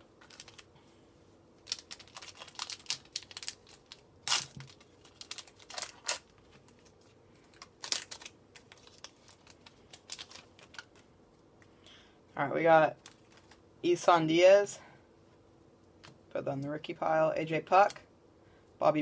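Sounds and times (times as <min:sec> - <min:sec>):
plastic wrapper tearing and crinkling: 0:00.2 - 0:00.7, 0:01.6 - 0:11.0, 0:13.0 - 0:13.6.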